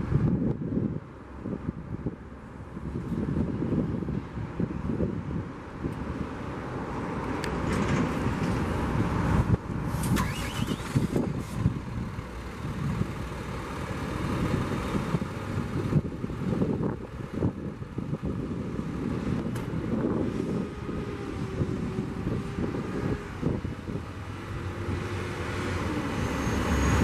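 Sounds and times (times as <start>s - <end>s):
truck diesel engine running: 10.2s - 25.1s.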